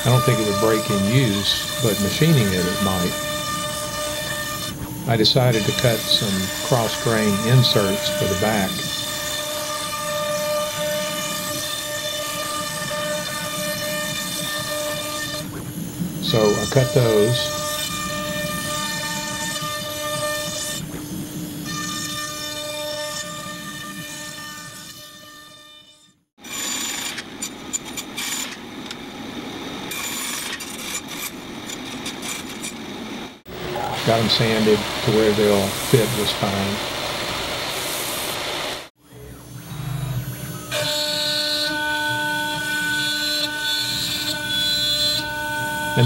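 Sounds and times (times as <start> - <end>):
power saw motor hum: 0.0 - 9.6, 33.5 - 46.0
saw blade cutting wood: 0.0 - 15.5, 16.2 - 29.0, 29.9 - 38.9, 40.7 - 46.0
router spindle whining: 0.0 - 24.7, 26.5 - 46.0
hiss of cutting wood: 5.1 - 9.5, 33.5 - 38.9.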